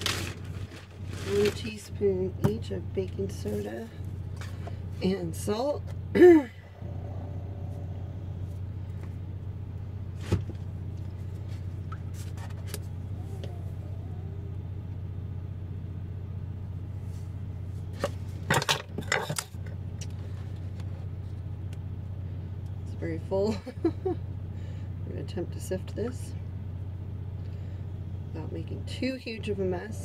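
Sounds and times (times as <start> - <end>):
low hum: 0.0 - 30.0
kitchen items clattering: 18.0 - 19.7.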